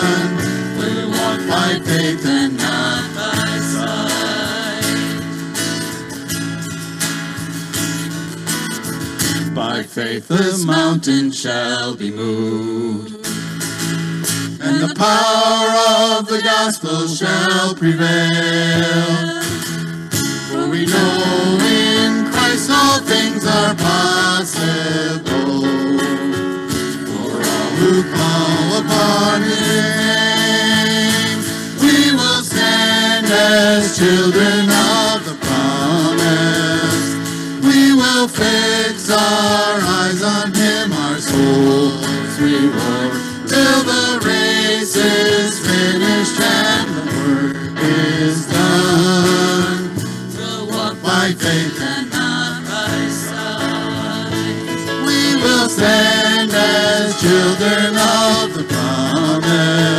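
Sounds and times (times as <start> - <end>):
voices singing: 0.0 - 5.5, 9.5 - 13.3, 14.6 - 19.8, 20.4 - 59.9
acoustic guitars strumming: 0.0 - 59.9
keyboard playing: 19.8 - 59.9.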